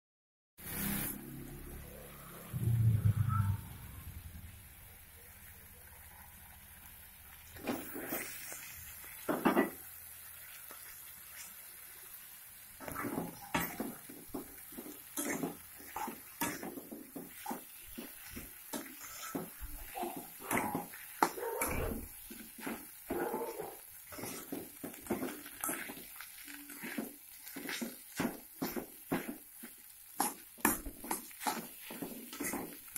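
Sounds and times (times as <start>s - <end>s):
metal spatula scraping a wok: 7.6s - 8.6s, 12.8s - 32.9s.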